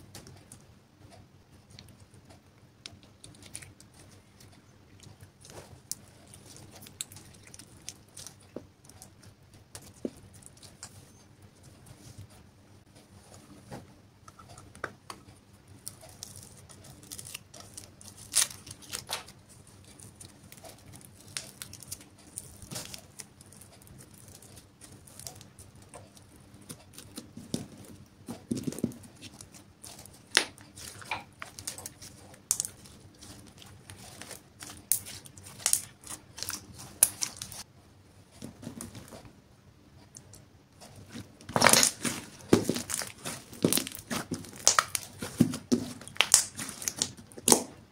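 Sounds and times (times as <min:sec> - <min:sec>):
slime popping and crackling: 0:16.1 - 0:37.6, 0:41.1 - 0:47.8.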